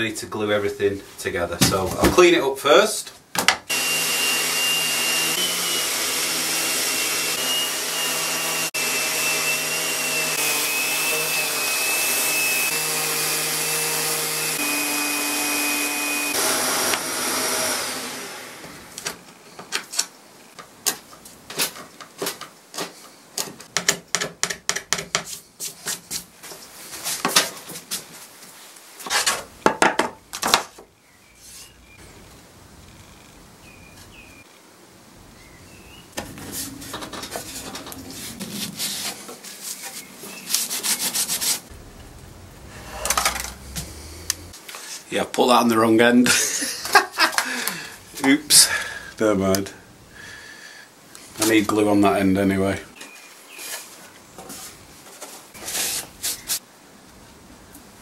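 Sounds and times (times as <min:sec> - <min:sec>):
electric sander whining: 0:03.7 - 0:19.0, 0:41.7 - 0:44.6
wooden parts clicking and knocking: 0:19.6 - 0:25.3.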